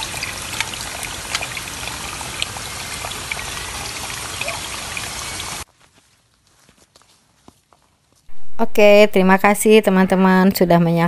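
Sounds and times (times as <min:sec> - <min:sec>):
water pouring into a pool: 0:00.0 - 0:05.6
water drips and splashes: 0:00.0 - 0:05.7.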